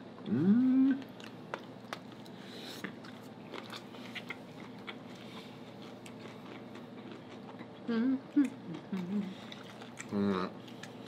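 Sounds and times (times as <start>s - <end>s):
low steady hum: 0.0s - 11.0s
chewing and crunching food: 0.9s - 11.0s.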